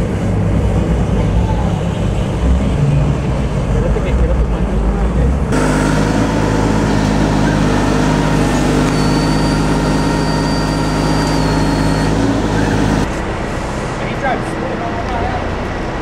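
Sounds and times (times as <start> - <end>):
boat engines idling rumble: 0.0 - 16.0
thin high whine: 5.6 - 13.1.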